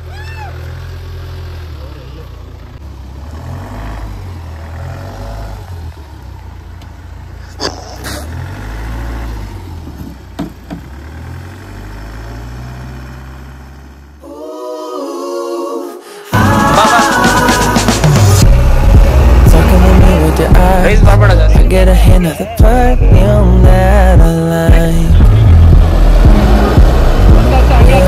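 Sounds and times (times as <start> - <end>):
diesel engine running unevenly: 0.0 - 14.2, 16.4 - 28.0
sharp knocks: 9.9 - 10.9
background music: 14.2 - 28.0.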